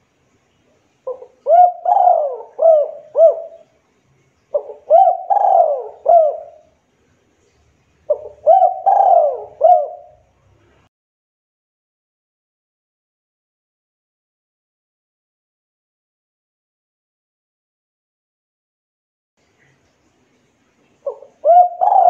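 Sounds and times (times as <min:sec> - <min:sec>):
dove cooing: 0:01.0 - 0:03.7, 0:04.5 - 0:06.8, 0:08.1 - 0:10.3, 0:21.0 - 0:22.0.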